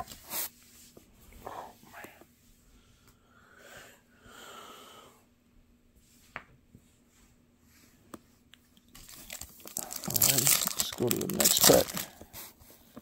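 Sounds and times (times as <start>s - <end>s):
soft rustling of card packs: 7.8s - 13.0s.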